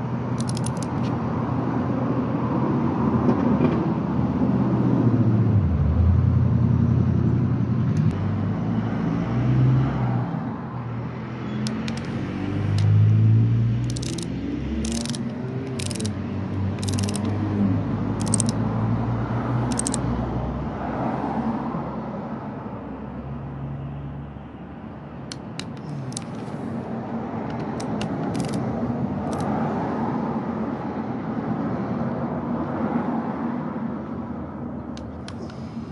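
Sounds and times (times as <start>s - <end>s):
torque wrench ratchet clicking: 0.4s - 1.0s, 13.8s - 17.4s, 18.2s - 18.6s, 19.7s - 20.0s, 25.3s - 26.4s, 27.5s - 28.6s, 29.2s - 29.5s.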